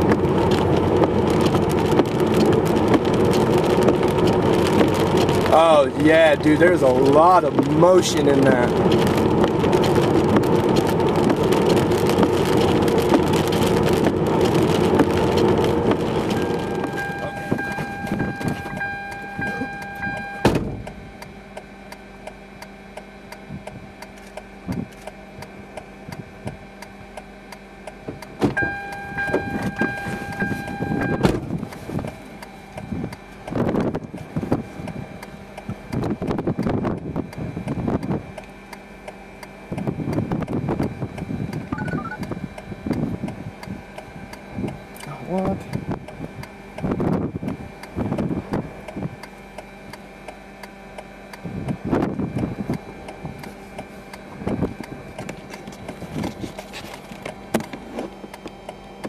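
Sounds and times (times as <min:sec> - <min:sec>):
car tyres on wet road: 0:00.0 - 0:59.0
high tone with overtones: 0:16.3 - 0:20.6, 0:41.8 - 0:42.2.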